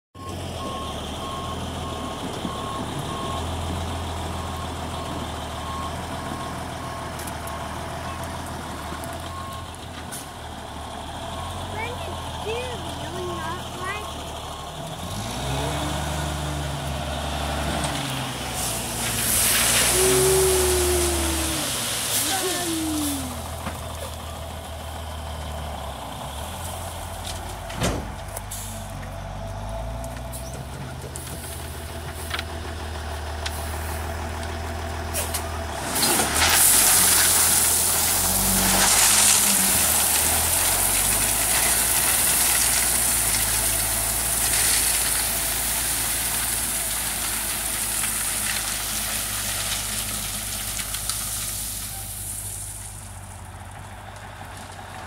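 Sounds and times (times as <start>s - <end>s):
truck engine running: 0.2s - 55.0s
gravel sliding off truck bed: 15.0s - 24.4s, 30.0s - 55.0s.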